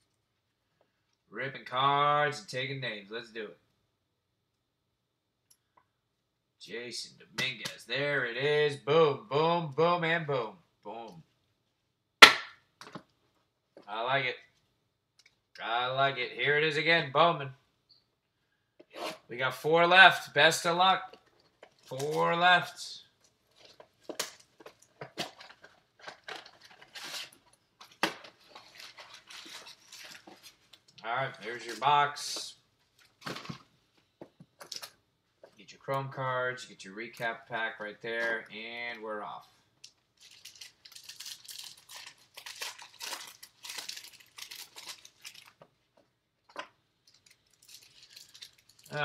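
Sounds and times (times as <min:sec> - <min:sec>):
cardboard and wrapper rustling: 0:23.5 - 0:31.9, 0:32.8 - 0:33.8, 0:40.2 - 0:45.6, 0:47.0 - 0:49.0.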